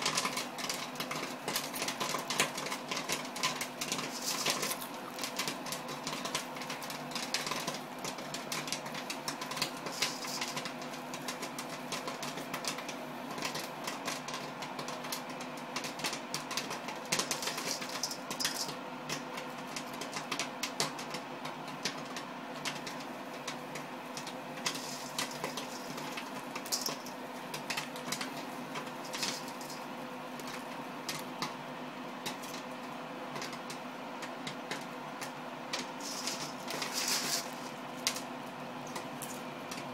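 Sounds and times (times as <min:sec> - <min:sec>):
popcorn popping: 0:00.0 - 0:39.9
machine humming: 0:35.1 - 0:39.9.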